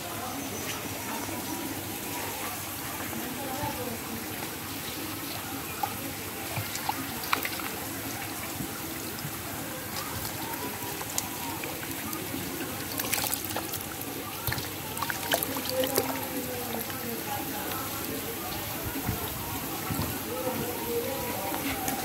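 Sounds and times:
water sloshing: 0:03.2 - 0:22.0
sharp little splashes: 0:05.9 - 0:08.5, 0:09.9 - 0:17.0.

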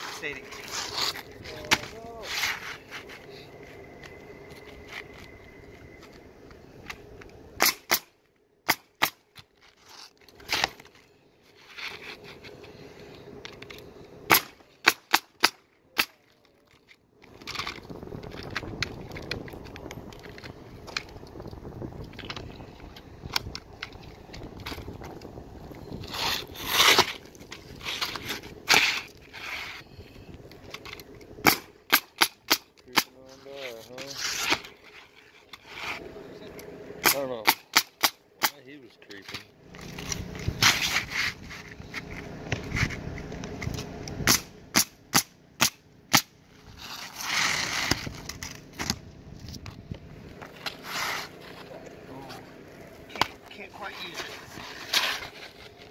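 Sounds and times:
roofing shingles scraping: 0:00.0 - 0:04.0, 0:09.4 - 0:15.4, 0:23.8 - 0:32.5, 0:33.2 - 0:36.2, 0:39.1 - 0:43.9, 0:46.5 - 0:49.6, 0:50.2 - 0:55.9.

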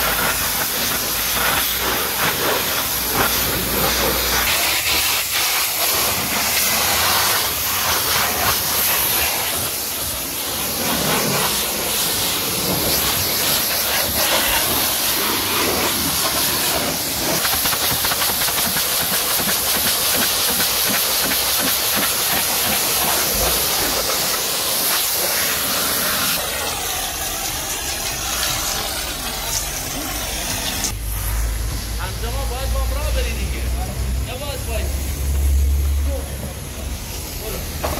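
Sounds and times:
pressure washer spraying water: 0:00.0 - 0:37.9.

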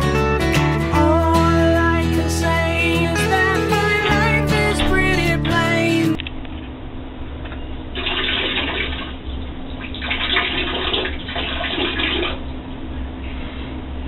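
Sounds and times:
water running and splashing: 0:08.0 - 0:09.2, 0:09.8 - 0:12.4.

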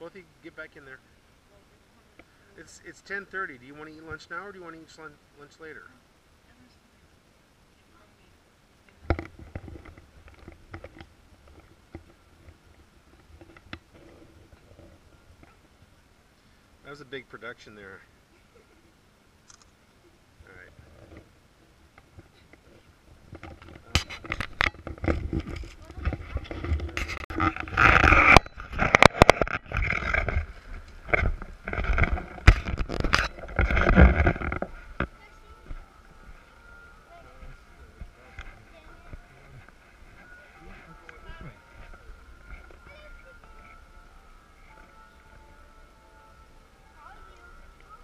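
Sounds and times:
camera handling rubbing and rustling: 0:22.2 - 0:36.4.

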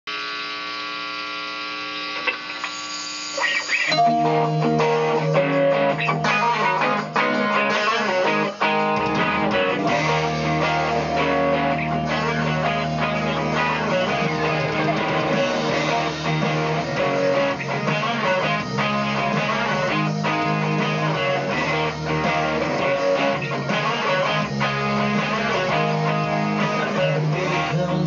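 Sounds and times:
electric guitar playing: 0:03.4 - 0:28.0
low bass line: 0:09.0 - 0:23.8.

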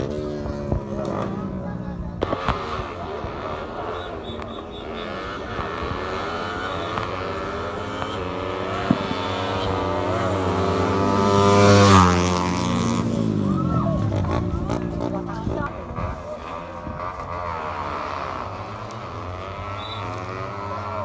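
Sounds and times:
racing engine at full throttle: 0:00.0 - 0:21.0.

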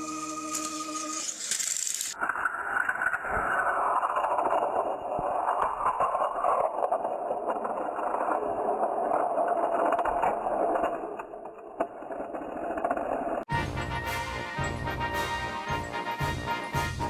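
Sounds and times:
toy train motor whirring: 0:00.0 - 0:03.1.

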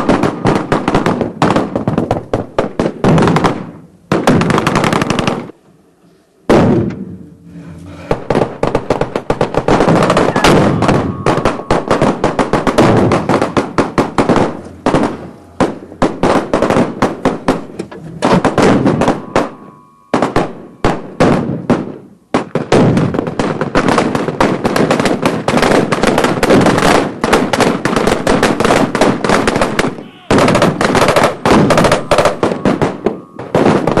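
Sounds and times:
loud bang: 0:06.4 - 0:34.0
automatic gunfire: 0:08.1 - 0:34.0.

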